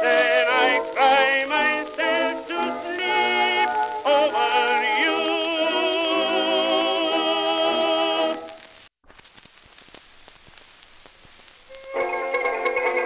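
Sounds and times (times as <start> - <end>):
singing voice with vibrato: 0.0 - 8.6
faint crackling hiss: 0.0 - 13.0.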